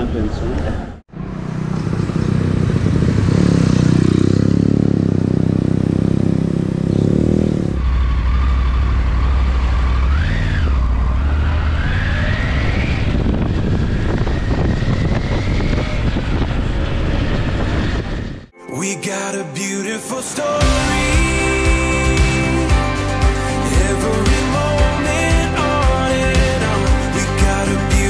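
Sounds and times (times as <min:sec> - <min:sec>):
motorcycle riding on road: 0:01.0 - 0:18.5
motorcycle engine running: 0:01.1 - 0:11.5.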